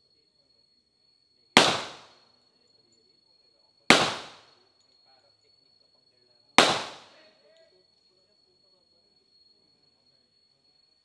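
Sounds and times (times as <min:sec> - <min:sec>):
gunshots with echo: 0:01.6 - 0:02.1, 0:03.9 - 0:04.4, 0:06.6 - 0:07.1.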